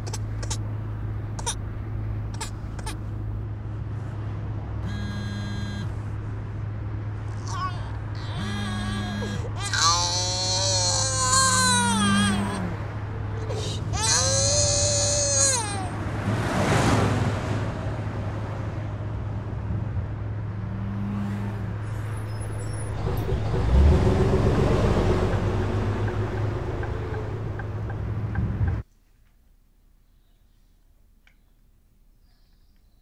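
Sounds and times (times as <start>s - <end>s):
baby crying: 7.4s - 12.8s, 13.4s - 16.0s
car cabin rumble: 7.9s - 9.9s, 22.4s - 28.9s.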